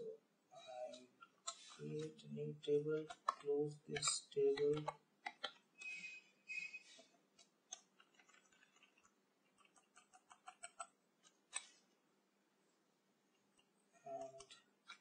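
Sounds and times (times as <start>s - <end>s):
typing on computer keyboard: 7.4s - 11.7s.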